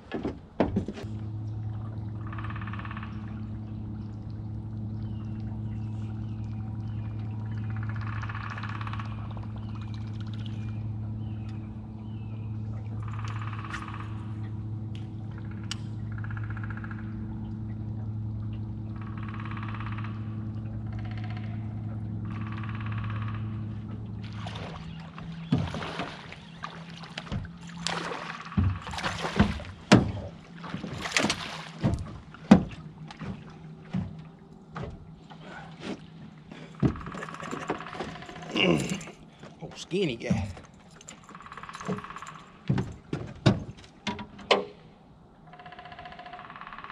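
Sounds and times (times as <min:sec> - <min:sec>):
low motor hum: 0:00.0 - 0:46.9.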